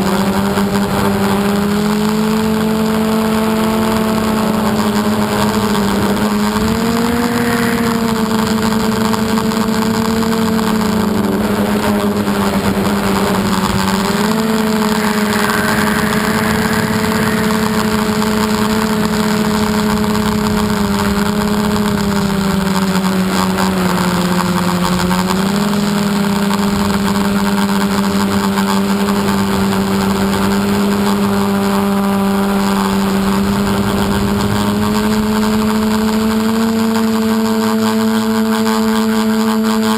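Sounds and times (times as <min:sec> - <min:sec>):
drone motors humming: 0:00.0 - 0:39.9.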